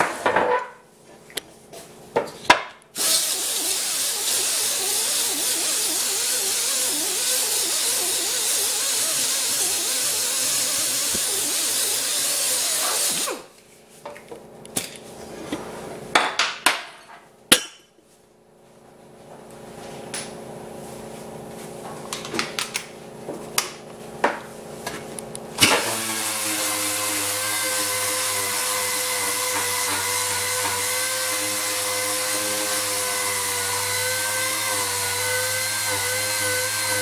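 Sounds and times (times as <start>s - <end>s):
air disc sander hissing: 3.0s - 13.5s, 25.6s - 37.0s.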